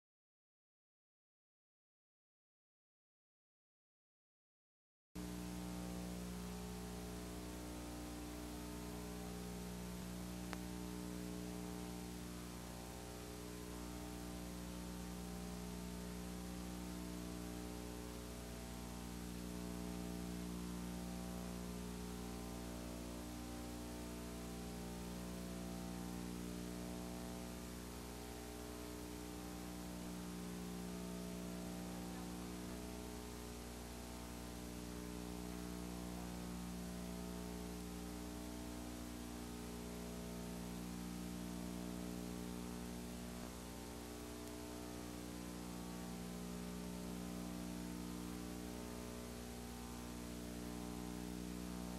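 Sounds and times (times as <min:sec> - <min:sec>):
constant hiss: 0:05.2 - 0:51.9
electrical hum with overtones: 0:05.2 - 0:51.9.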